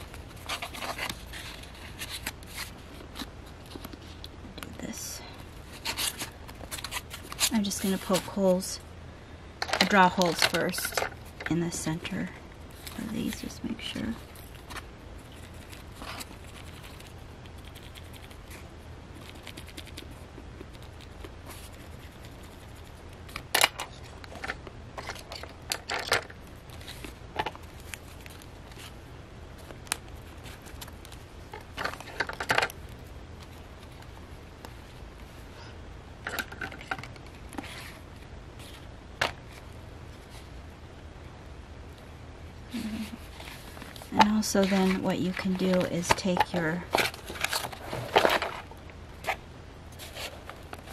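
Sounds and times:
paper rustling: 0:00.0 - 0:04.2
steady low hum: 0:00.0 - 0:50.9.

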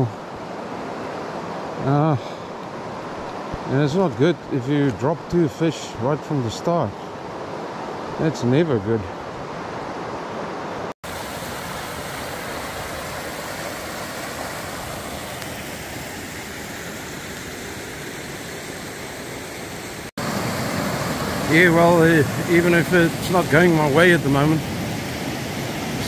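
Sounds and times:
river water rushing over rocks: 0:09.2 - 0:26.0.

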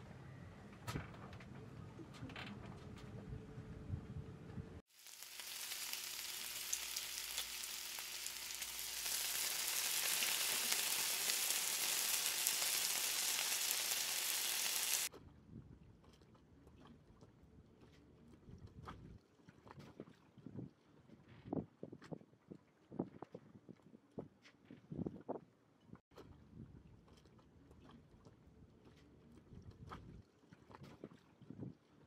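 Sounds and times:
vegetables sizzling in a pan: 0:04.9 - 0:15.1.

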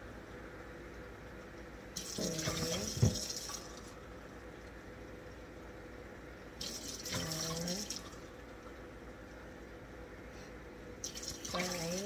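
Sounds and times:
faint steady hum: 0:00.0 - 0:12.0
water running from a tap: 0:02.0 - 0:03.9, 0:06.6 - 0:08.3, 0:11.0 - 0:12.0.

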